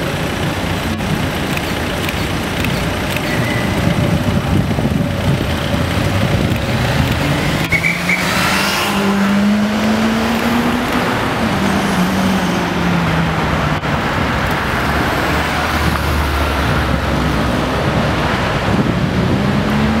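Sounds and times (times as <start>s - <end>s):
deep engine drone: 0.0s - 7.8s
traffic noise with engine hum: 0.0s - 20.0s.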